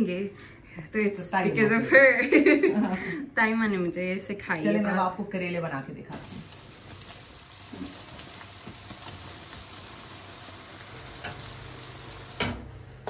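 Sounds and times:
vegetables sizzling in hot oil: 6.1 - 12.7.

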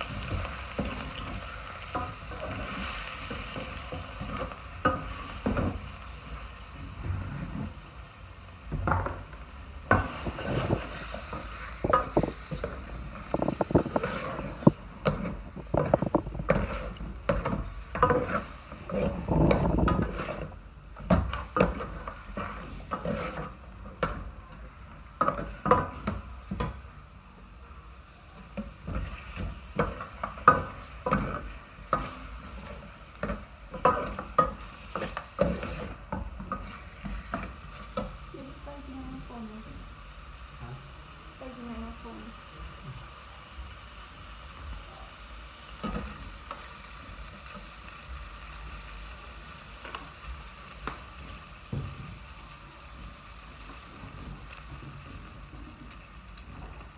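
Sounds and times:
meat sizzling: 0.0 - 56.9
spoon clinking and scraping pot: 11.8 - 20.5.

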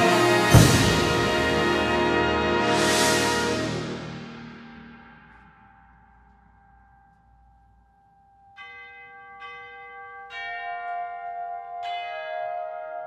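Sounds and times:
band chord: 0.0 - 5.4.

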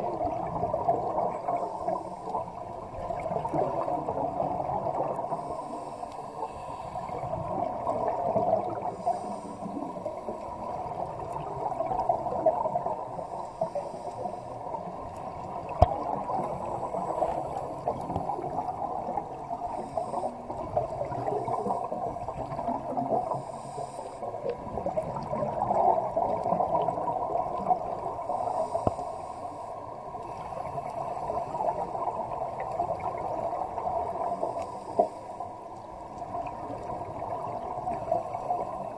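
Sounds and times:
gurgle of exhaled bubbles: 0.0 - 5.6, 7.0 - 23.5, 24.4 - 28.9, 30.2 - 34.5, 36.2 - 38.9
regulator inhalation hiss: 5.3 - 7.1, 9.0 - 9.9, 13.2 - 14.5, 23.3 - 24.3.

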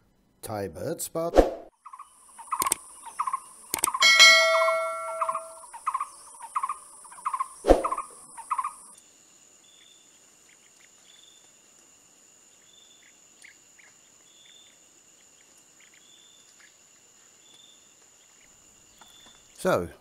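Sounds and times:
insects droning: 1.7 - 20.0
faint ticks: 2.5 - 4.0
insect buzzing note: 3.8 - 6.0
chiming jingle: 4.0 - 5.6.

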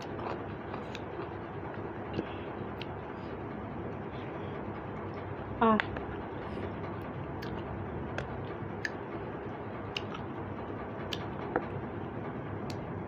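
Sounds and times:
person chewing: 0.0 - 3.3, 7.3 - 9.0, 9.9 - 10.3.

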